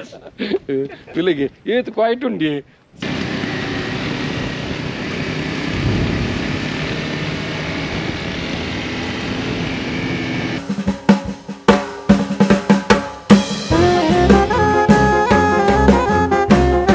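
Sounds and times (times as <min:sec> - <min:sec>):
steady rushing noise: 0:03.0 - 0:10.7
drum kit music: 0:10.6 - 0:16.9.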